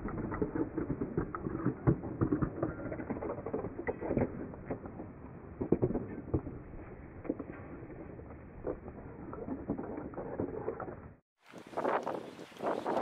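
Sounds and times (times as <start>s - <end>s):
footsteps on paved path: 11.4s - 13.0s.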